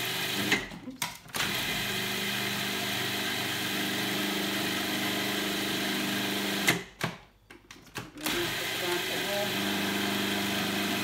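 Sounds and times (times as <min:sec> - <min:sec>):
food processor motor running: 0:00.0 - 0:00.7, 0:01.4 - 0:06.7, 0:08.2 - 0:11.0.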